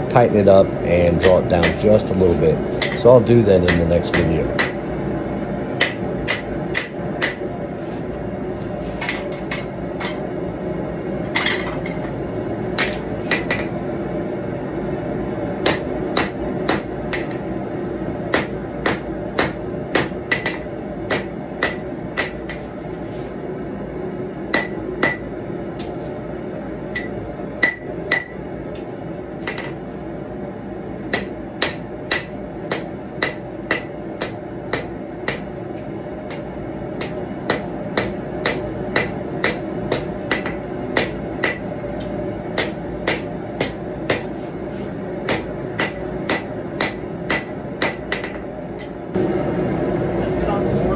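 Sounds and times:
steady low hum: 0.0 - 8.8, 26.2 - 50.9
hammer striking blade on anvil: 1.2 - 2.2, 2.8 - 7.4, 18.3 - 22.6, 24.5 - 25.2, 31.1 - 35.5, 37.0 - 44.3, 45.3 - 49.0.

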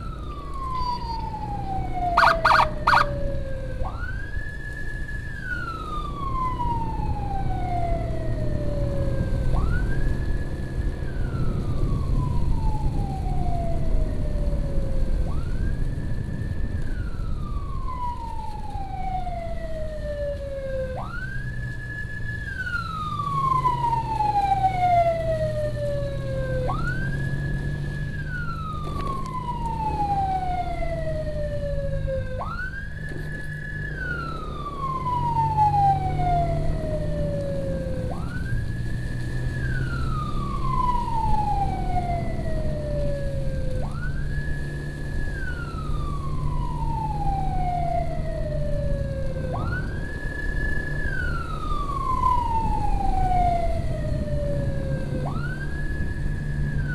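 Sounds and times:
emergency siren wailing: 0.0 - 56.9
motorcycle engine drone: 20.9 - 56.9.

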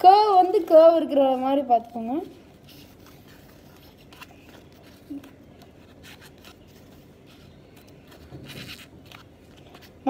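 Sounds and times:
foam parts rubbing and scraping: 2.0 - 10.0.

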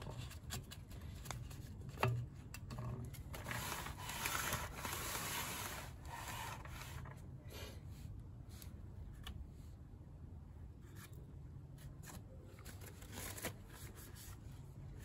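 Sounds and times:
rubber gloves rustling cloth: 3.2 - 7.2.

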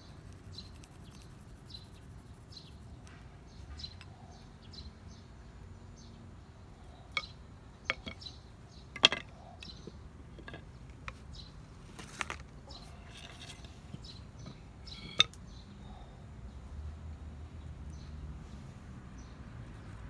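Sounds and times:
wooden pieces knocking and clattering: 7.1 - 8.3, 8.9 - 11.2, 12.0 - 15.4.

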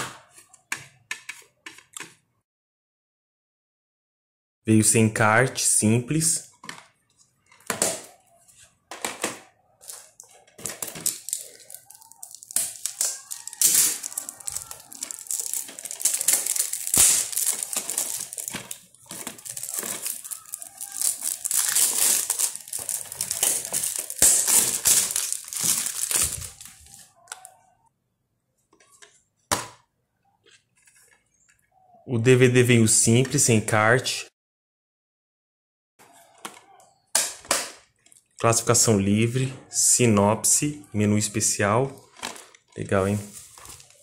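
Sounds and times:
plastic wrap crinkling: 9.8 - 27.5, 42.0 - 44.0.

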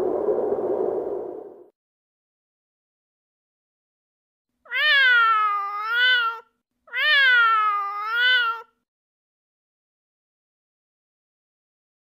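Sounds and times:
cat meowing: 4.7 - 8.7.

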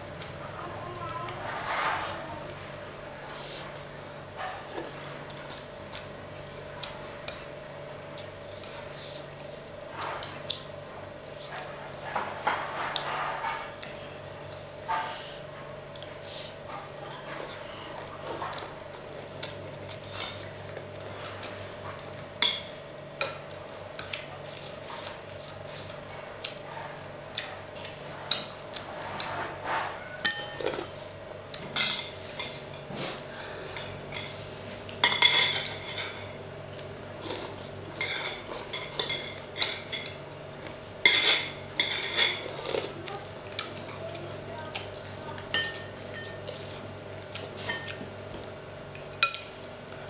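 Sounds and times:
cutlery clinking on dishes: 29.2 - 30.9, 35.0 - 36.3, 41.0 - 42.6.

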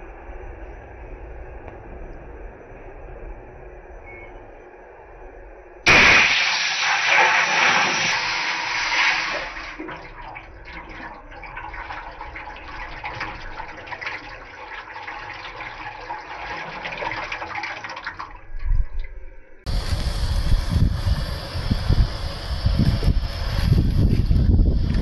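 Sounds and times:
water pouring into metal pot: 6.1 - 19.1.

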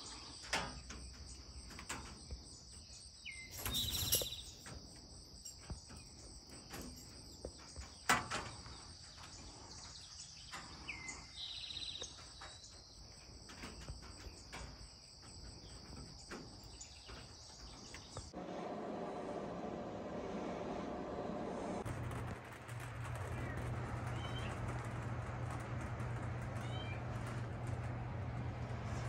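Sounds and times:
insects chorus: 0.0 - 18.4
bird calling: 3.2 - 4.6.

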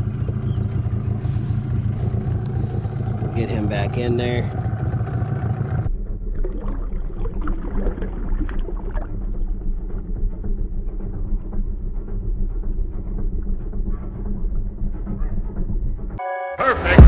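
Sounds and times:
steady low rumble: 0.0 - 16.2
water splashing: 6.4 - 9.6.

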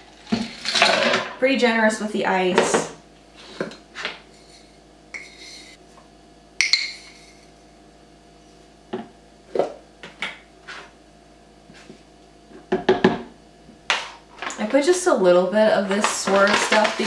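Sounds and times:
spoon tapping on jar: 6.6 - 7.2.

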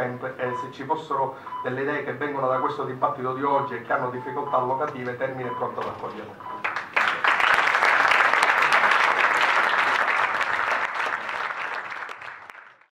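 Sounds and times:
audience applauding: 6.6 - 12.9.

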